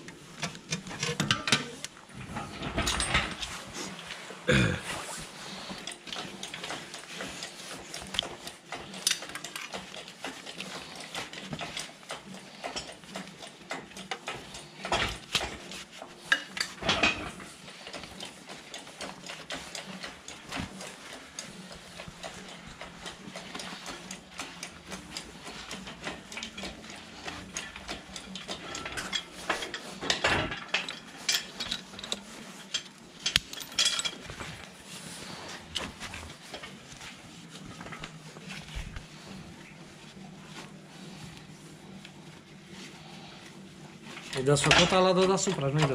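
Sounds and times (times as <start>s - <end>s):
metal chain and hook clanking: 2.3s - 3.5s, 23.5s - 34.3s.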